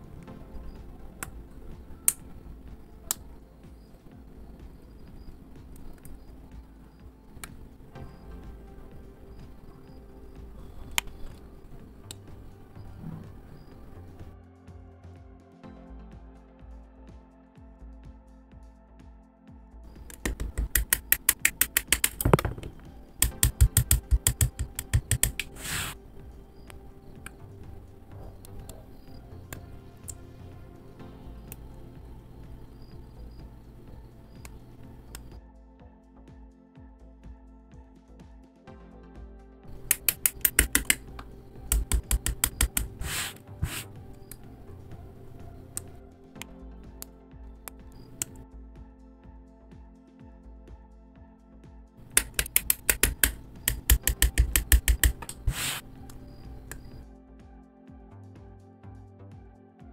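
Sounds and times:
faint background music: 0:00.0 - 0:59.9
plastic parts clicking together: 0:20.0 - 0:25.6, 0:39.7 - 0:44.4, 0:52.0 - 0:57.0
side nippers snipping plastic: 0:20.1 - 0:26.0, 0:39.7 - 0:44.4, 0:52.0 - 0:57.0
scraping rustles: 0:25.3 - 0:26.0, 0:42.9 - 0:44.0, 0:55.4 - 0:55.9
brief hiss: 0:25.5 - 0:26.0, 0:43.0 - 0:43.9, 0:55.5 - 0:55.9.

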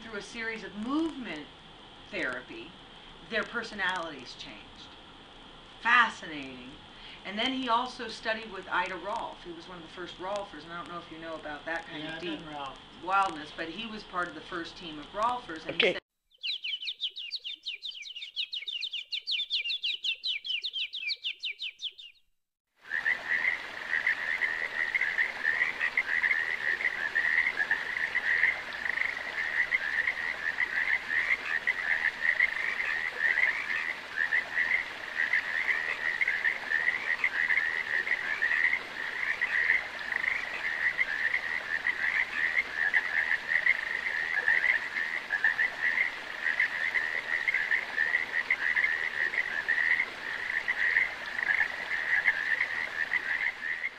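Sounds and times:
faint hiss: 0:00.0 - 0:15.9
rapid high-pitched chirping: 0:16.3 - 0:22.2.

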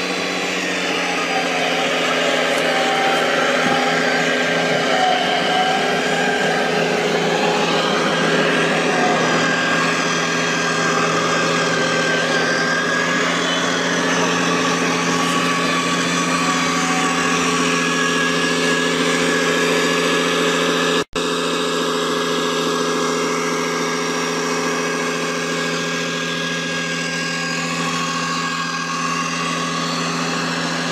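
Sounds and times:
model truck diesel engine idling: 0:00.0 - 0:21.0.

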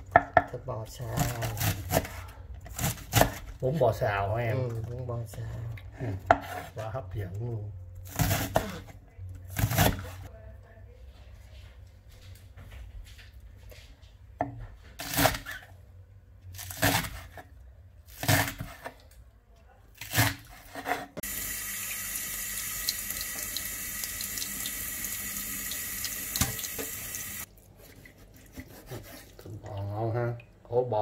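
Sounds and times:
tap running into a steel sink: 0:26.3 - 0:27.0
knife strokes on a wooden board: 0:27.8 - 0:29.5.

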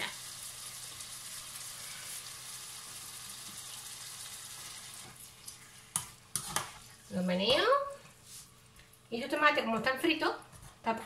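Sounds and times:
vegetables sizzling in oil: 0:00.0 - 0:07.8.

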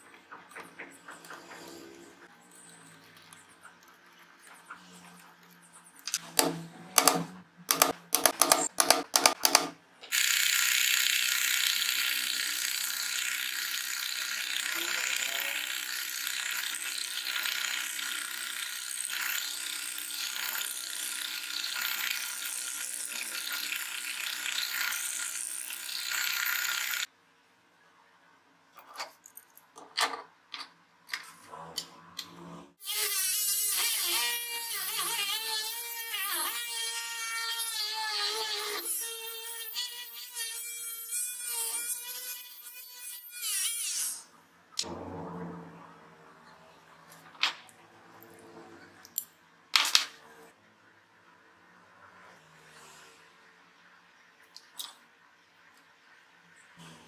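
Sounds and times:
electric drill boring wood: 0:10.1 - 0:27.1, 0:32.8 - 0:43.1.

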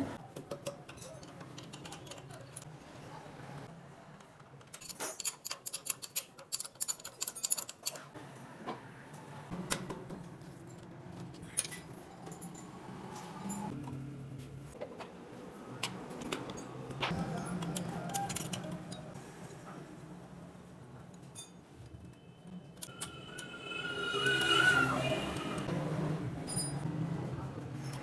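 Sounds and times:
spanner clicking on bolts: 0:04.6 - 0:08.0.

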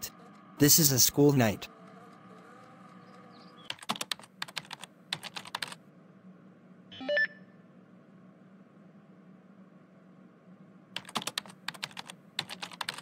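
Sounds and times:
computer keyboard typing: 0:01.8 - 0:05.8, 0:11.0 - 0:13.0.

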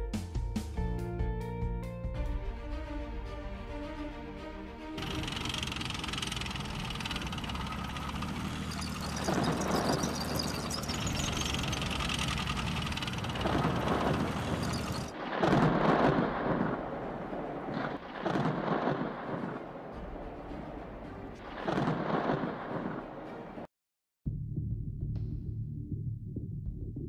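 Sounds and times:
low thunder rumble: 0:11.2 - 0:23.4.

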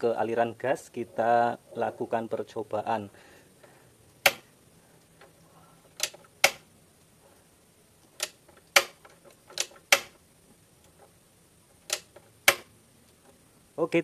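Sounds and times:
gas stove igniter clicks: 0:06.0 - 0:06.6, 0:09.6 - 0:10.2, 0:11.9 - 0:12.7.

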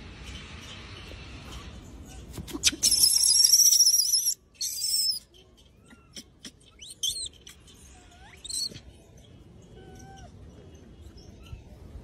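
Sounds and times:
monkey screaming: 0:02.6 - 0:05.2.

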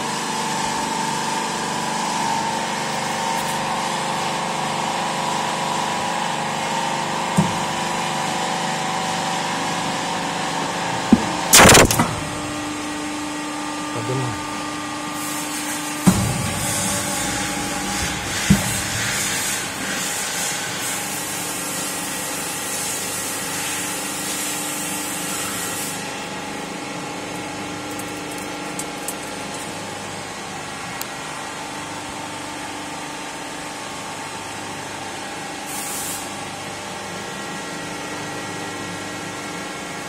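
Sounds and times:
hydraulic power unit humming: 0:00.0 - 0:35.1
hiss: 0:35.7 - 0:36.4.

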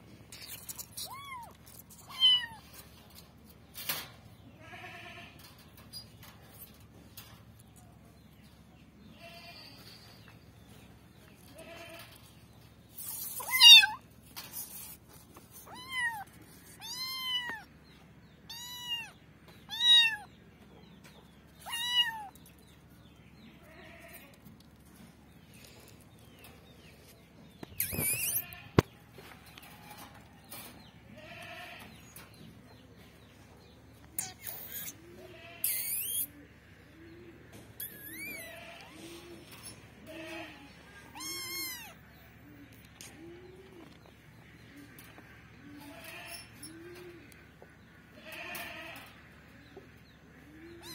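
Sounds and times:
kitten meowing: 0:18.5 - 0:19.1, 0:41.1 - 0:41.9.

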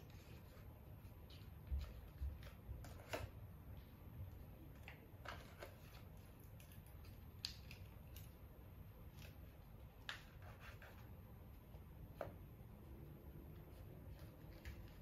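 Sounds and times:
paper rustling and crinkling: 0:00.0 - 0:03.4, 0:04.6 - 0:08.4, 0:09.0 - 0:11.2, 0:13.5 - 0:15.0.

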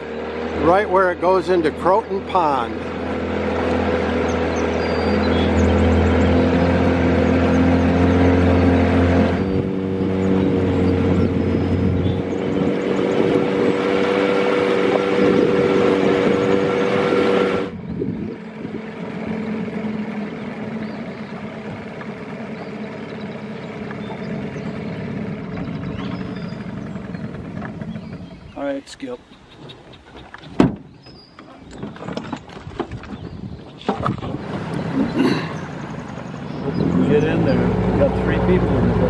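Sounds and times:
boat motor whining hum: 0:00.0 - 0:39.0.

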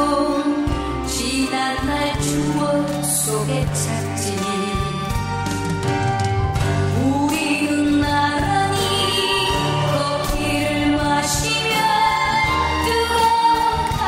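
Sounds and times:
person singing: 0:00.0 - 0:14.0
slow background music: 0:00.0 - 0:14.0.

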